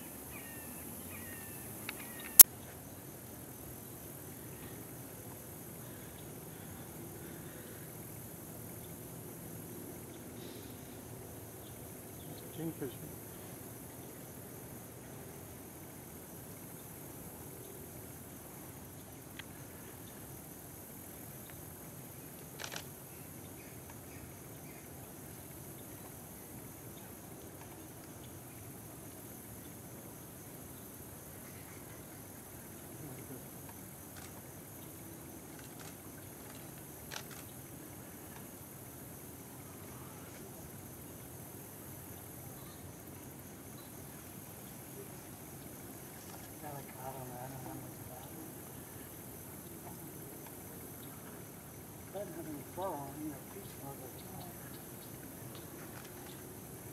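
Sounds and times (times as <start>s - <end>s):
faint chirps: 0.0s - 2.5s
high-pitched insect chorus: 0.0s - 56.9s
wing rustle: 33.6s - 38.6s, 45.3s - 56.6s.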